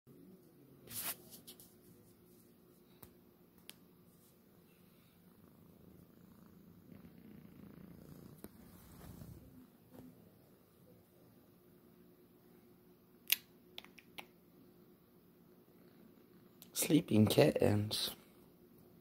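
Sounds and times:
cat purring: 4.2 - 12.6.

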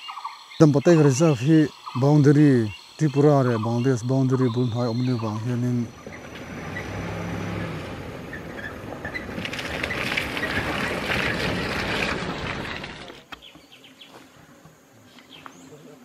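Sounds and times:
vehicle driving past on mud: 5.0 - 13.2.

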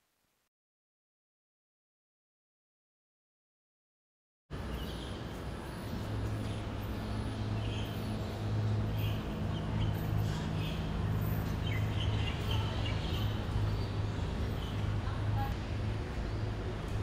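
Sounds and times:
birds chirping: 4.6 - 15.6.

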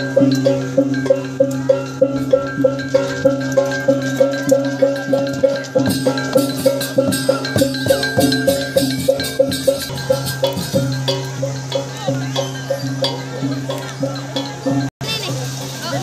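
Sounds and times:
small gong steady beat: 0.0 - 15.4
cymbal and drum strokes: 0.0 - 16.0.

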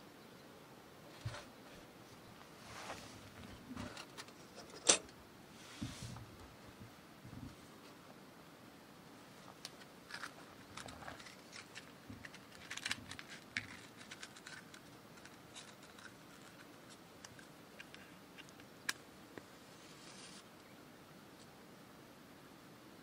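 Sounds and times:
matchbox being opened: 9.6 - 19.0.

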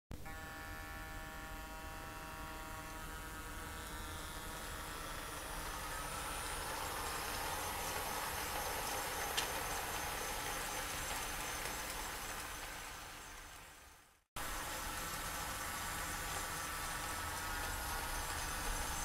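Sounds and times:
model locomotive whine: 0.2 - 19.0
model wagons rolling on track: 5.6 - 19.0.

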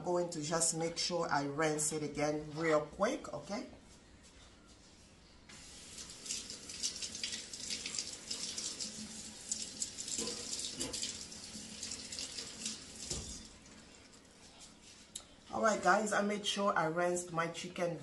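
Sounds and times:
tap running into sink: 9.5 - 13.5.

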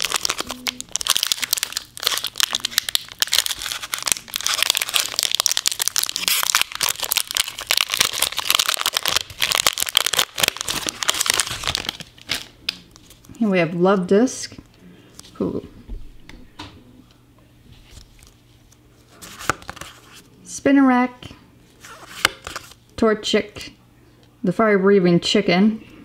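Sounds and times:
foil pack crinkling and tearing: 0.0 - 13.3.

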